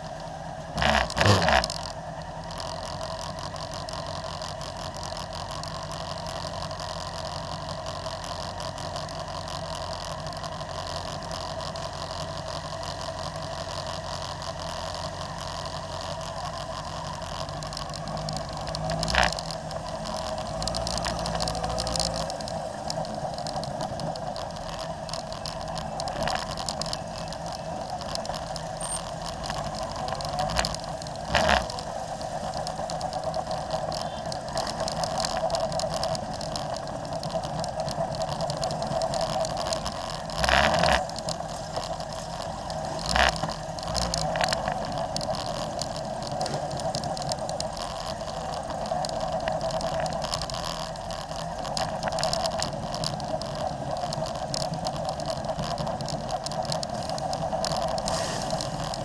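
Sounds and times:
motorcycle engines running slowly: 0:00.0 - 0:59.0.

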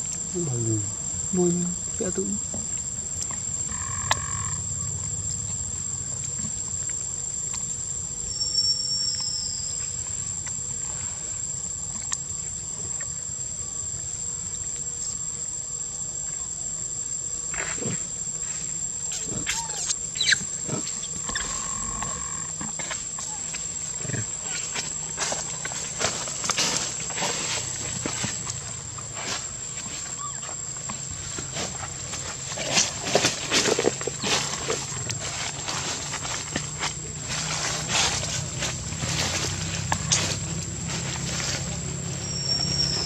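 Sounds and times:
insect drone: 0:00.0 - 0:43.0
short squeaky calls: 0:19.1 - 0:22.5, 0:30.1 - 0:30.6, 0:42.2 - 0:43.0.

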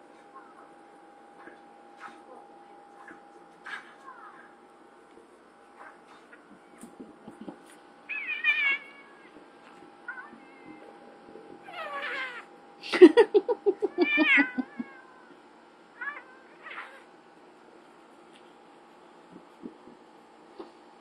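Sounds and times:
cats meowing and yowling: 0:08.1 - 0:09.4, 0:11.6 - 0:12.5, 0:13.9 - 0:15.4.

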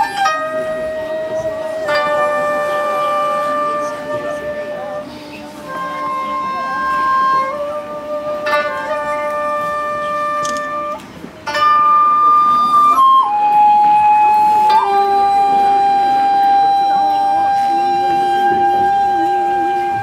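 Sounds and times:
flute-like melody: 0:00.0 - 0:20.0.

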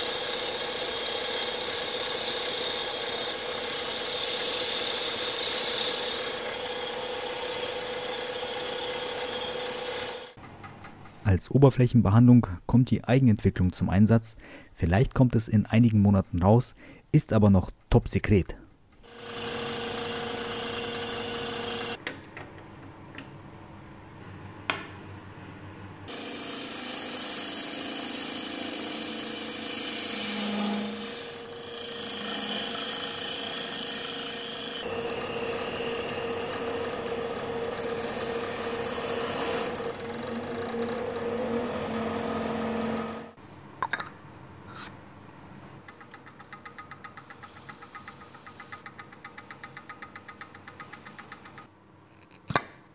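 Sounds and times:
gouge cutting spinning wood: 0:00.0 - 0:10.3, 0:19.1 - 0:22.0, 0:26.1 - 0:43.4
wood lathe humming: 0:00.0 - 0:10.4, 0:19.0 - 0:22.0, 0:26.1 - 0:43.4.

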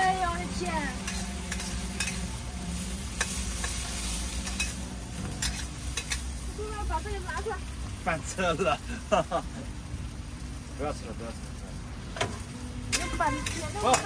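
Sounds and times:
food sizzling in a wok: 0:00.0 - 0:14.0
spatula scraping against pan: 0:00.9 - 0:06.4.

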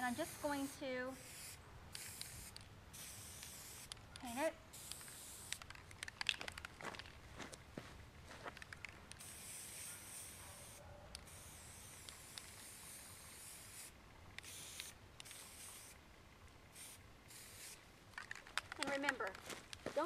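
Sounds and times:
aerosol spray paint hissing: 0:00.0 - 0:05.8, 0:09.1 - 0:16.0, 0:16.7 - 0:17.8.

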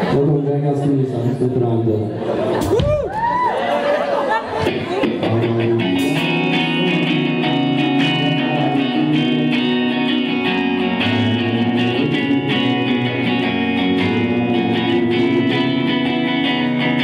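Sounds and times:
electric guitar chords: 0:04.4 - 0:17.0.

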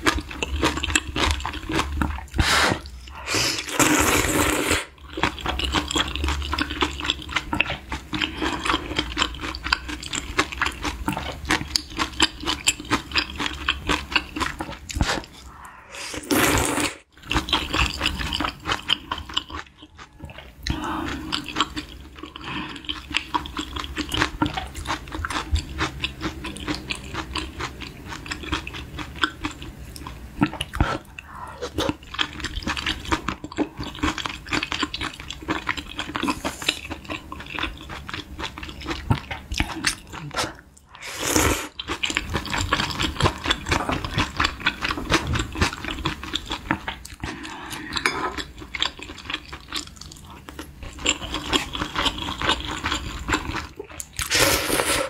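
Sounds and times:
loud slurp: 0:02.3 - 0:04.9, 0:15.0 - 0:17.0, 0:40.4 - 0:41.8, 0:54.2 - 0:55.0
wet chewing and mouth smacking: 0:05.0 - 0:15.7, 0:17.2 - 0:41.0, 0:41.7 - 0:54.3.

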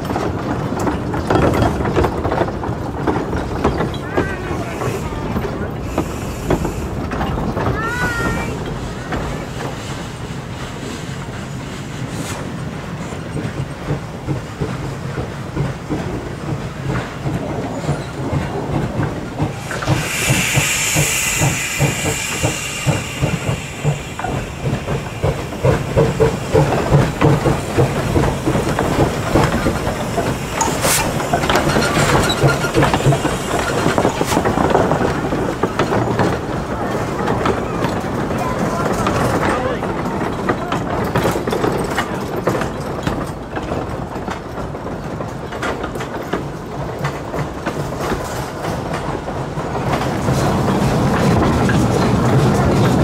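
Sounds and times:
steam engine rumble and pulsing: 0:00.0 - 0:53.0
steam hiss: 0:04.5 - 0:14.4, 0:15.0 - 0:40.4.

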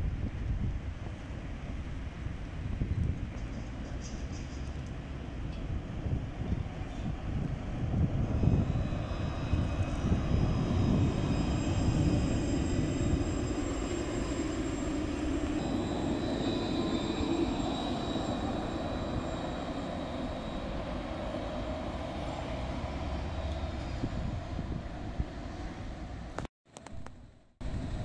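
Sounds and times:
steel wheels rumbling on rail: 0:00.0 - 0:26.3
high-pitched electric whine: 0:08.4 - 0:21.7.

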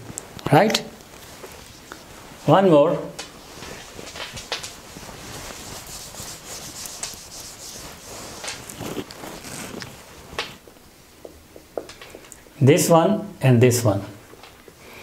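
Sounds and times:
eraser rubbing whiteboard: 0:03.6 - 0:10.1.

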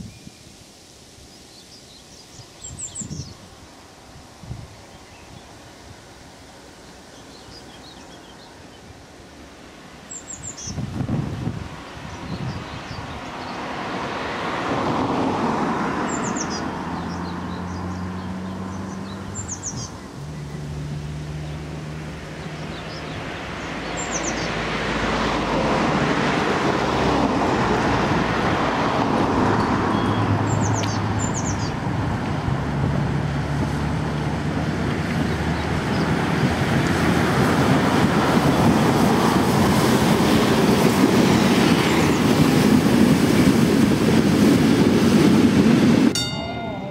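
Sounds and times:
road traffic passing: 0:00.6 - 0:46.9
steam locomotive approaching: 0:13.0 - 0:46.9
small bird chirping: 0:16.1 - 0:20.7.

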